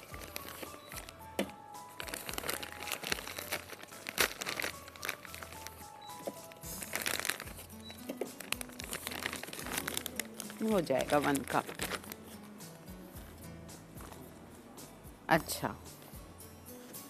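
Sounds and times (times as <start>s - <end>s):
bag crinkling: 0.0s - 1.2s, 1.9s - 12.4s
background music: 0.0s - 17.0s
frozen strawberries clicking: 2.1s - 12.1s.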